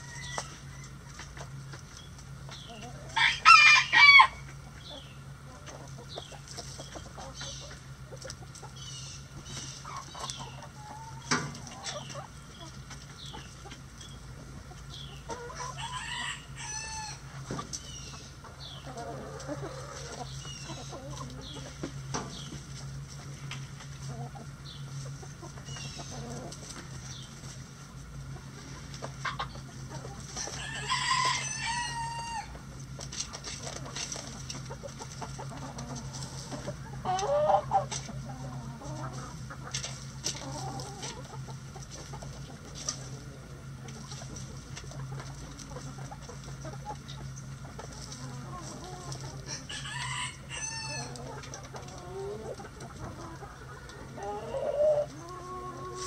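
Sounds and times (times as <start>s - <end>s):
rooster crowing: 0.0s - 1.0s, 3.2s - 4.5s, 15.6s - 17.3s, 30.4s - 32.5s, 49.5s - 51.2s
hens clucking softly: 0.0s - 56.0s
loud hen call: 2.9s - 4.5s, 15.3s - 17.3s, 30.4s - 32.6s, 48.9s - 51.2s, 54.1s - 56.0s.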